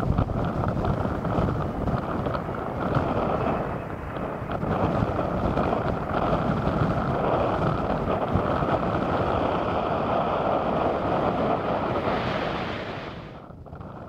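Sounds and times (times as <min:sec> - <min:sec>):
jet engines in reverse thrust: 0:00.0 - 0:14.0
wind buffeting microphone: 0:00.0 - 0:14.0.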